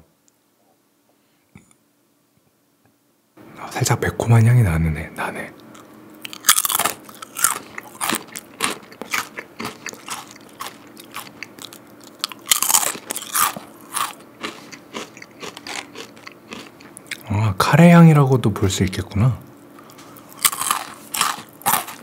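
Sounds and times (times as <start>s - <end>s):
crunching and chewing snack: 5.7s - 17.3s, 19.8s - 22.0s.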